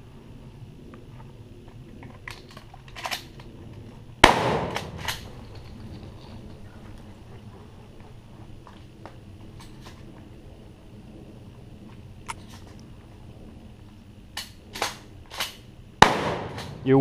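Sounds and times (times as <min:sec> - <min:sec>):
shotgun shot: 0:04.2 - 0:05.3, 0:16.0 - 0:16.9.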